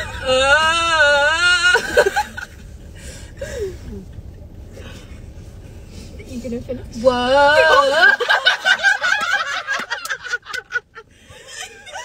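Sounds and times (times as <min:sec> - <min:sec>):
car interior rumble: 0:00.0 - 0:12.0
giggles and laughter: 0:07.6 - 0:12.0.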